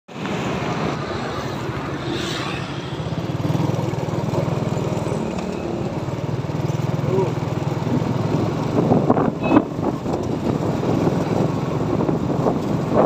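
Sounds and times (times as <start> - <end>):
motorcycle engine running: 3.1 - 13.0.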